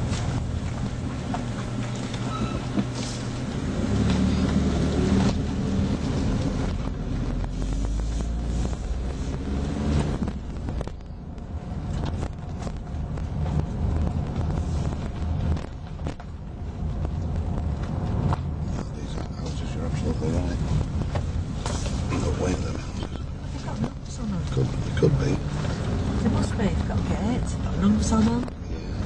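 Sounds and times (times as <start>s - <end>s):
car engine running: 0.0s - 29.0s.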